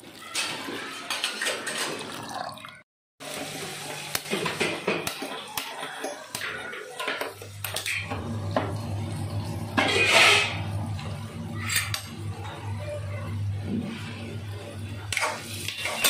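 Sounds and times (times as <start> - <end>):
gas flame hum: 7.3 - 16.0.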